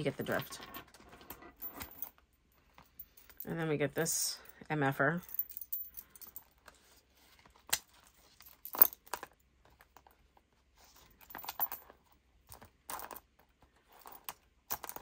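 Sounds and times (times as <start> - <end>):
metal charms clinking: 5.2 - 6.6, 8.4 - 9.3.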